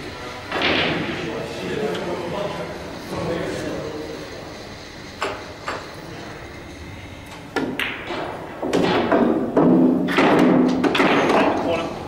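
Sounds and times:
cue tip striking cue ball: 7.5 - 11.5.

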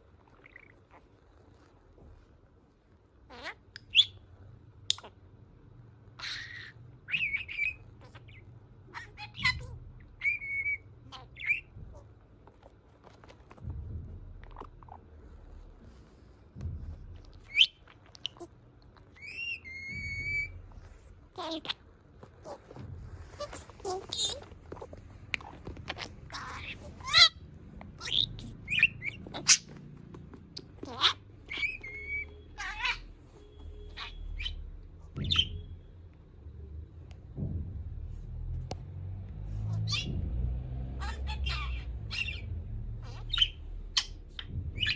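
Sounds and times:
budgerigar chirping and whistling: 3.3 - 4.2, 6.2 - 12.0, 17.4 - 18.5, 19.1 - 20.7, 23.4 - 29.8, 30.6 - 35.9, 39.7 - 40.2, 41.0 - 44.9.

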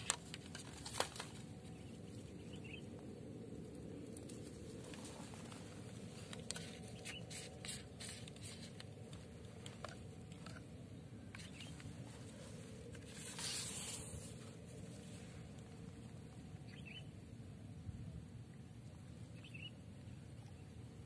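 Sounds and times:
low outdoor rumble: 0.0 - 21.0
short rustle: 11.4 - 15.9.

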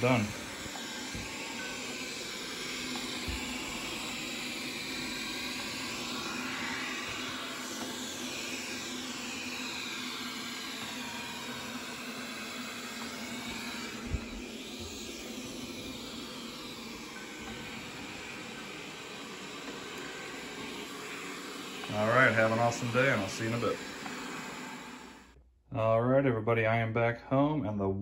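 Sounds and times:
robot vacuum whirring: 0.0 - 25.4.

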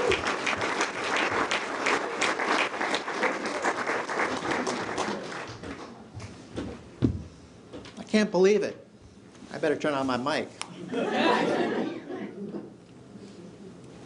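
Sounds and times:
audience applauding and cheering: 0.0 - 5.7.

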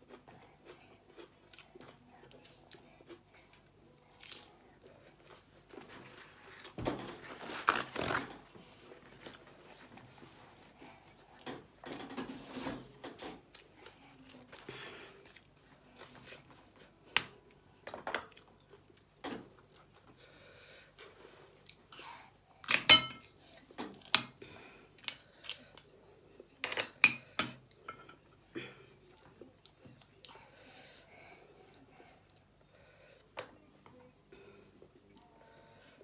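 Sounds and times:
quiet chewing: 0.0 - 6.8, 28.8 - 35.9.

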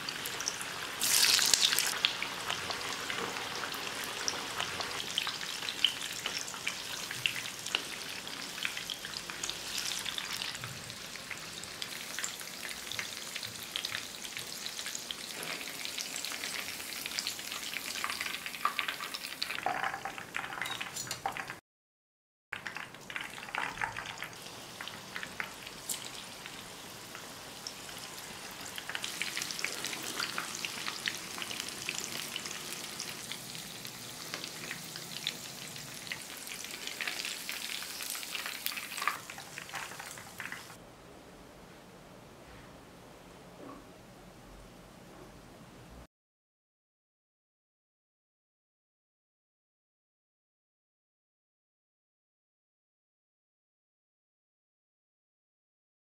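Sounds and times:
chicken deep-frying in oil: 0.0 - 21.6, 22.6 - 40.8.

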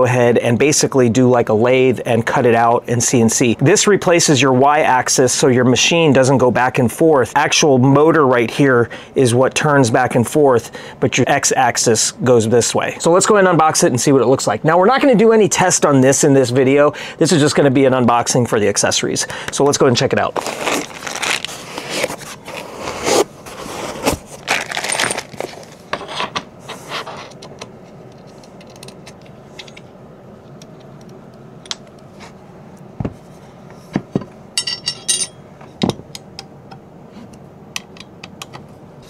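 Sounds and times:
cardboard and packing foam rustling: 20.1 - 25.9
metallic jingle: 34.6 - 35.4.

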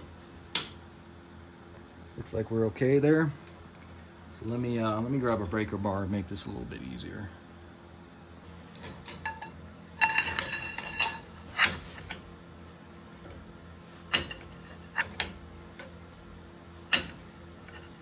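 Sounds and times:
metal bar clanking: 8.8 - 12.3, 14.1 - 16.0, 16.8 - 18.0
sharp metallic clicks and knocks: 16.9 - 17.8.

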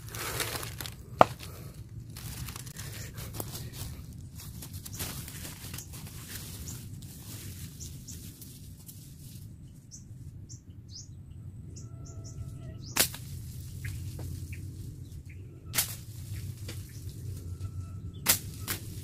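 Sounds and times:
small birds chirping: 0.0 - 19.0
steady low hum: 0.0 - 19.0
sharp cracks: 13.0 - 14.0, 15.7 - 16.8, 18.2 - 19.0.

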